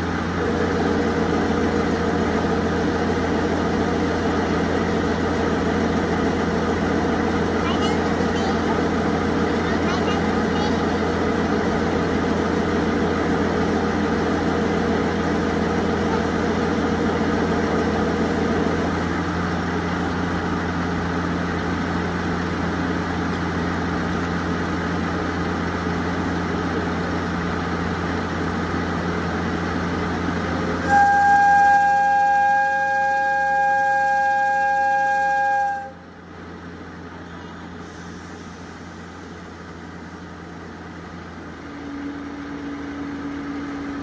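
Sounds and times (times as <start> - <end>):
diesel locomotive engines idling: 0.0 - 44.0
locomotive horn blast: 30.8 - 36.0.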